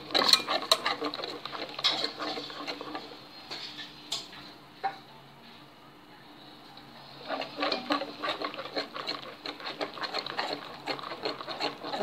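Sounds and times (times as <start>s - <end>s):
whisk scraping a saucepan: 0.0s - 4.1s, 7.0s - 12.0s.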